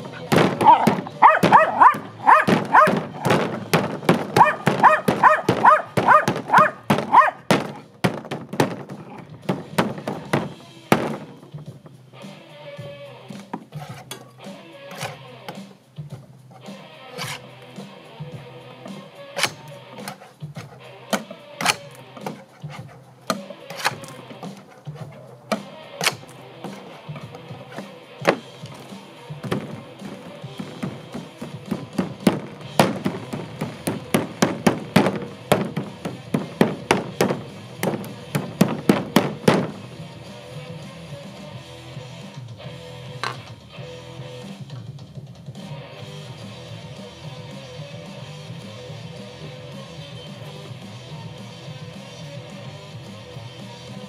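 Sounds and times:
sharp knocks: 0.0 - 12.0, 18.9 - 39.9
sticks beating on paper: 0.0 - 12.0, 18.9 - 39.9.

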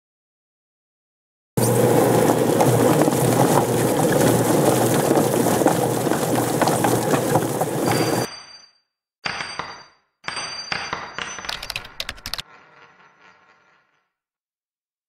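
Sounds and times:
chicken plucker motor hum: 1.6 - 8.3.

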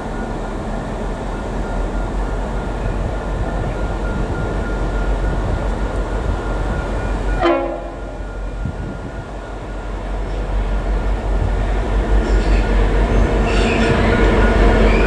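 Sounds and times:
diesel locomotives rumbling: 0.0 - 15.0
locomotive horn blast: 7.3 - 8.2.

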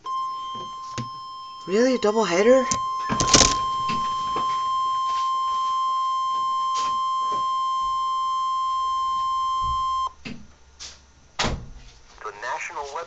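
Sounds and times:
high steady alarm beep: 0.0 - 10.2.

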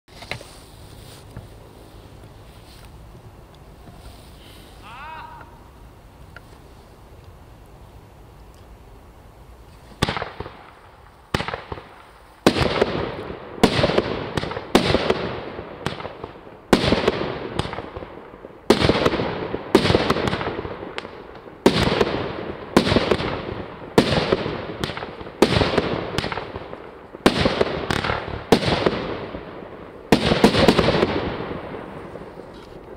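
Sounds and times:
firework shots firing: 10.0 - 32.9.

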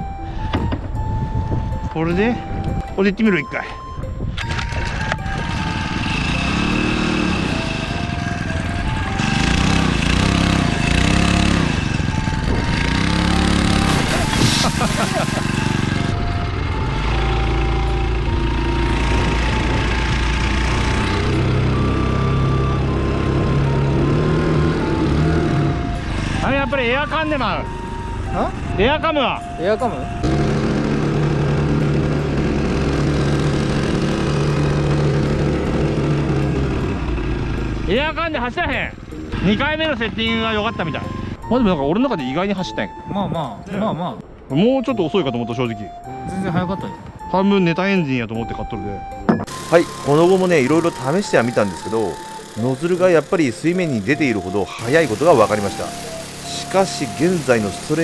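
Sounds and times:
outboard engine revving: 4.4 - 28.8, 30.0 - 38.1, 49.4 - 58.0
water jet hissing spray: 13.9 - 15.5, 54.8 - 58.0.

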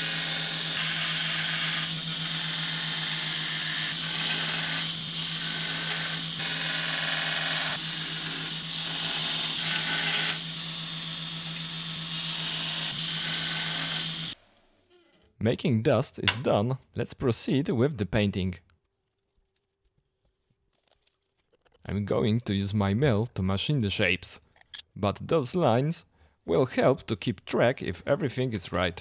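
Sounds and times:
belt grinder grinding steel: 0.0 - 15.2.

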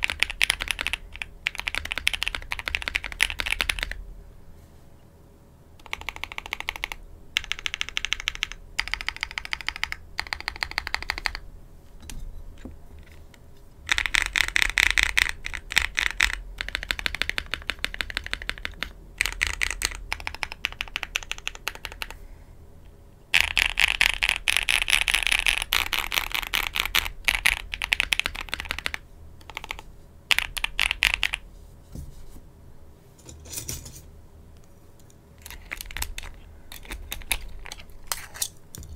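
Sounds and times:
mechanical keyboard typing: 0.0 - 4.0, 5.8 - 11.4, 13.8 - 22.2, 23.3 - 31.4, 35.4 - 38.0.

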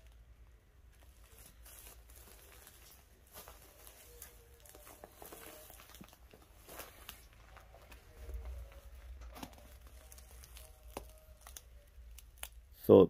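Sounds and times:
faint low hum: 0.0 - 13.0
footsteps on straw: 1.2 - 11.1.

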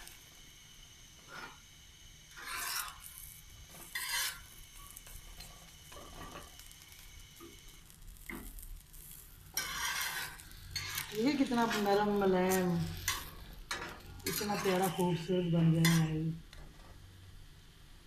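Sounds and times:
faint sizzle: 0.0 - 18.0
metal spatula scraping iron pan: 1.3 - 1.6, 2.3 - 6.5, 8.3 - 16.3.

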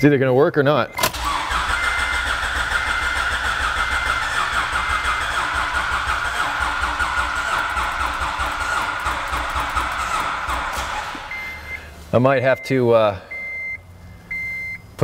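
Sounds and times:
starter cranking engine: 1.0 - 11.7
short beeps: 11.3 - 11.9, 12.6 - 14.9.

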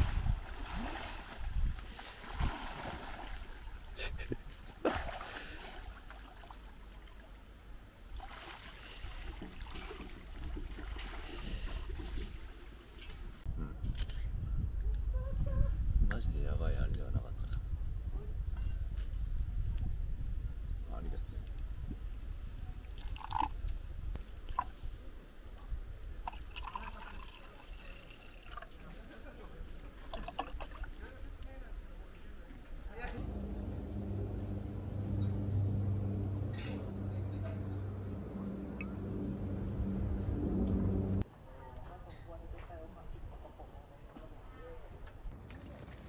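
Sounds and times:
river water flowing: 0.0 - 4.0
low rumble: 33.2 - 41.2.

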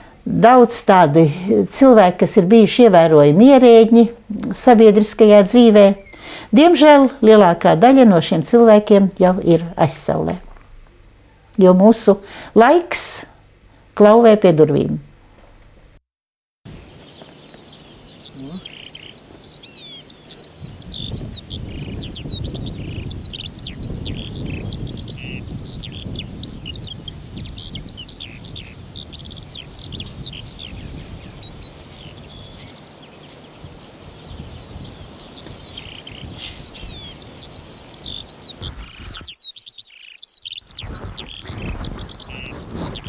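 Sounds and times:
songbirds chirping and trilling: 16.8 - 43.0.

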